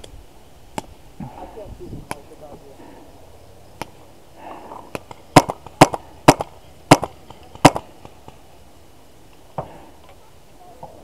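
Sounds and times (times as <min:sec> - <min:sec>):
paintball gun cracks: 0:04.9 - 0:08.4.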